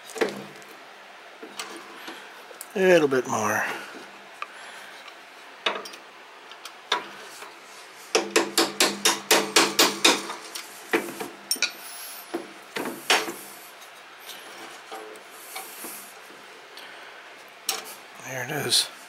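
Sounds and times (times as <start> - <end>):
hammer striking steel punch: 8.2 - 10.4.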